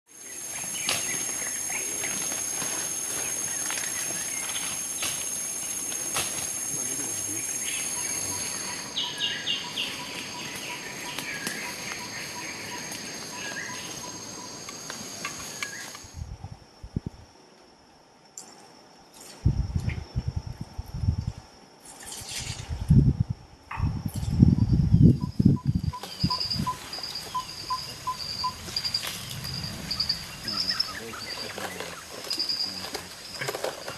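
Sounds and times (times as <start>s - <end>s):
insects chirring: 0.1s - 33.9s
bird calls: 0.2s - 16.2s, 25.0s - 33.9s.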